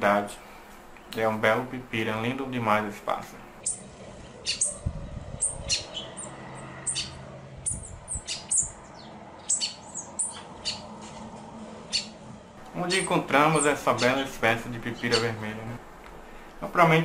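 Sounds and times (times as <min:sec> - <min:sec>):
bird high-pitched call notes: 0:05.4 - 0:10.9, 0:11.9 - 0:12.2.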